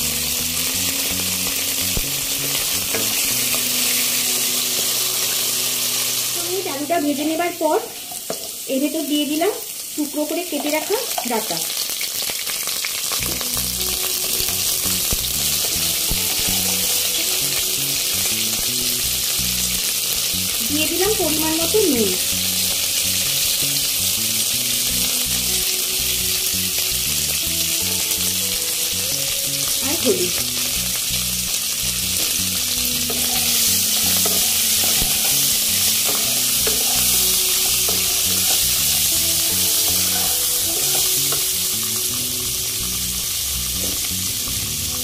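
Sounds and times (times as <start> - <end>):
food sizzling in hot oil: 0.0 - 45.0
wooden spatula stirring: 33.1 - 41.4.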